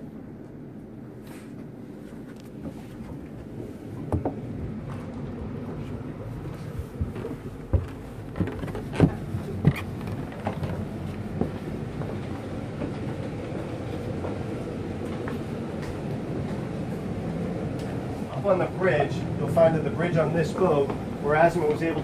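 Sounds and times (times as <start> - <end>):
low background noise: 0.0 - 22.0
footsteps on carpeted stairs: 0.4 - 18.6, 20.2 - 22.0.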